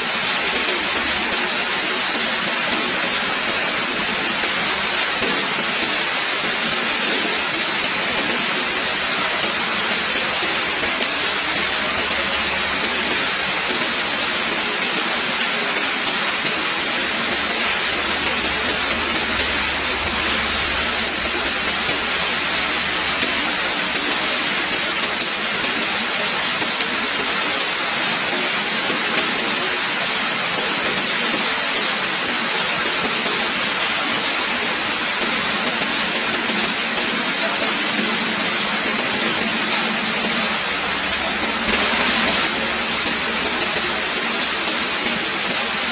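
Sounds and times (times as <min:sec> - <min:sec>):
heavy rain falling: 0:00.0 - 0:45.9.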